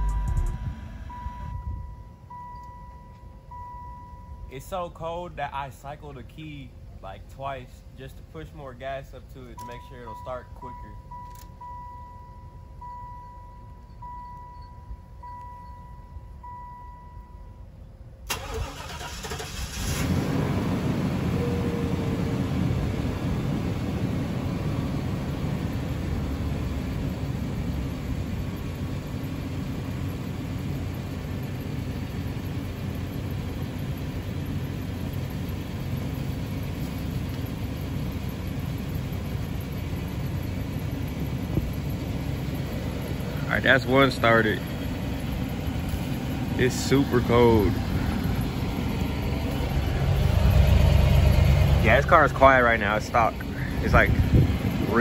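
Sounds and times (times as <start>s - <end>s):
car warning chime beeping: 0.0s - 4.6s, 9.5s - 19.5s
car engine idling: 0.0s - 55.0s
starter motor cranking: 18.3s - 20.1s.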